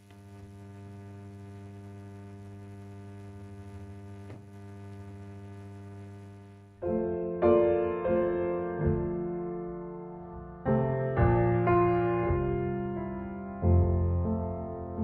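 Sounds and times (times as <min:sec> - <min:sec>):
electrical mains hum: 0:00.0 - 0:06.8
piano music: 0:06.8 - 0:15.0.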